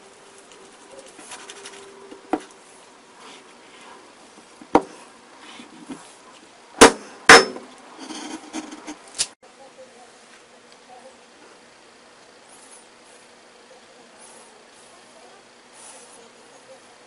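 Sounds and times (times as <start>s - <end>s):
cleaver chopping on plastic board: 6.8s - 7.6s.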